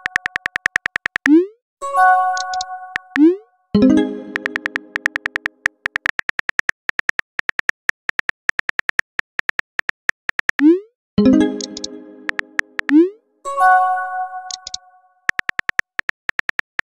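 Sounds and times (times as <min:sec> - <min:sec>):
phone keyboard taps: 0:00.0 - 0:01.3, 0:04.3 - 0:10.6, 0:14.5 - 0:16.9.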